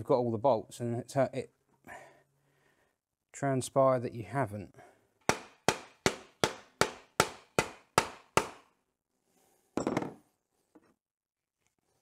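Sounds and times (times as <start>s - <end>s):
hammer striking metal: 5.3s - 8.7s.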